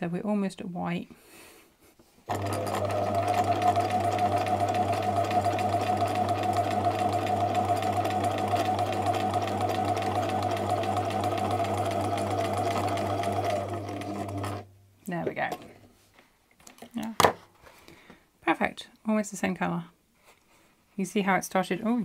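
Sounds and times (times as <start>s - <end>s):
sewing machine stitching: 2.3s - 14.6s.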